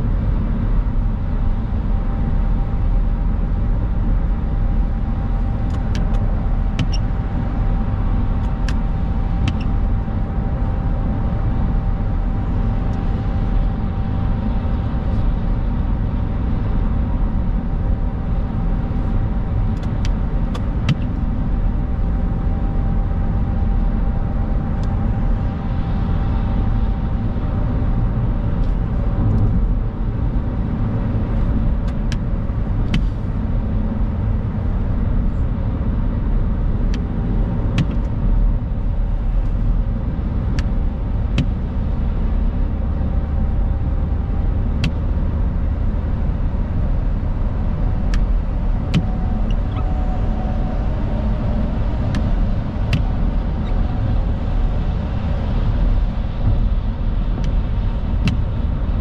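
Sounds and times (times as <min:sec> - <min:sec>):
car road noise rumble and hiss: 0:00.0 - 0:59.0.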